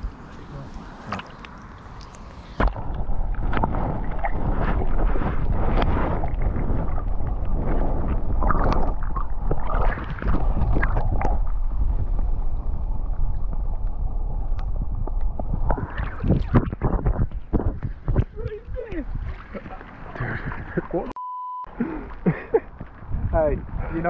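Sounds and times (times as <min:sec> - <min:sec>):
water gurgling: 0:00.0 - 0:21.2
water sloshing against camera: 0:00.0 - 0:21.2
muffled underwater rumble: 0:02.6 - 0:21.1.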